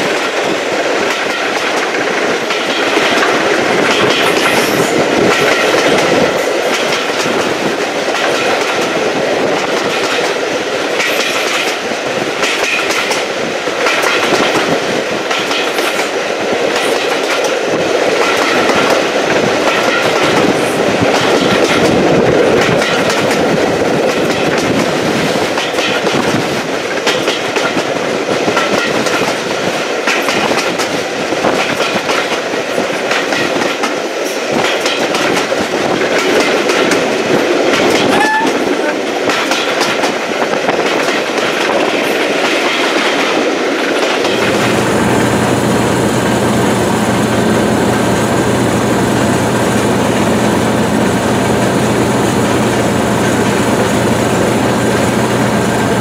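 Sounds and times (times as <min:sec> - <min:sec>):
rumble of train running gear: 0:00.0 - 0:56.0
train wheels clicking over rail joints: 0:00.0 - 0:56.0.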